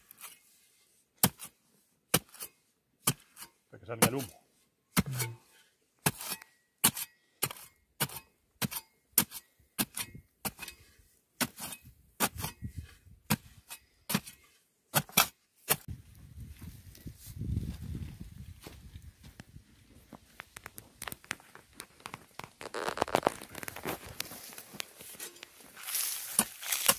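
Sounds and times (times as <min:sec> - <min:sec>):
scraping and rustling of soil: 0:00.0 - 0:26.9
spade chopping into hard soil: 0:01.2 - 0:04.3, 0:05.0 - 0:05.4, 0:06.0 - 0:15.9, 0:25.1 - 0:26.9.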